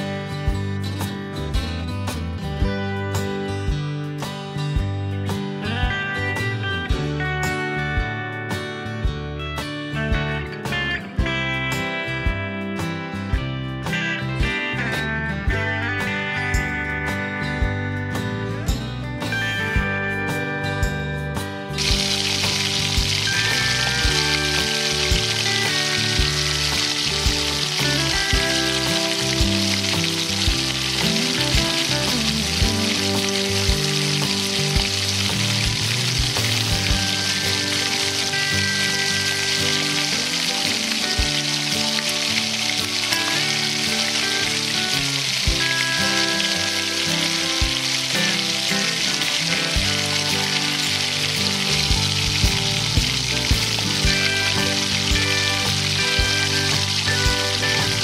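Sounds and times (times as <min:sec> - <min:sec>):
background music with beat: 0:00.0 - 0:58.0
chicken wings sizzling in oil: 0:21.8 - 0:58.0
tongs and spatula turning food: 0:21.8 - 0:58.0.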